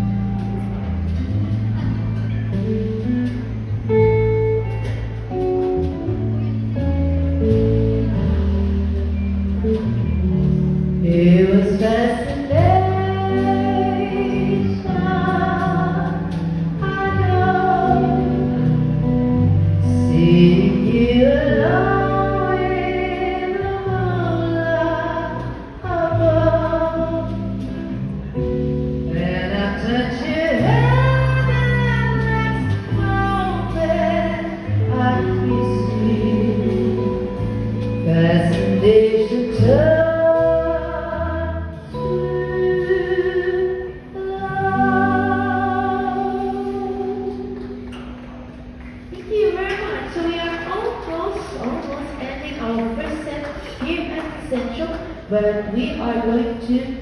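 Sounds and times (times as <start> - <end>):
drums: 0.0 - 50.1
bass guitar: 0.0 - 50.2
keyboard: 0.0 - 57.0
person singing lead vocal: 29.1 - 47.6.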